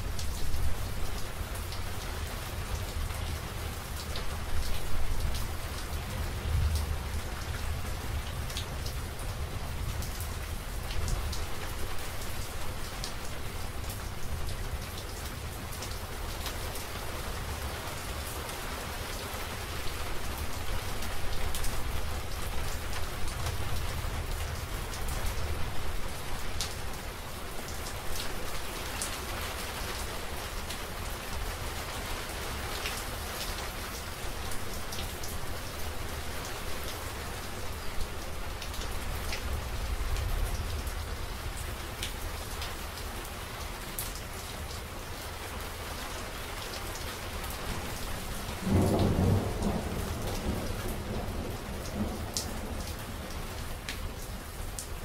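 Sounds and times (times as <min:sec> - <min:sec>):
heavy rain: 0:00.0 - 0:55.0
distant thunder rumble: 0:48.5 - 0:52.8.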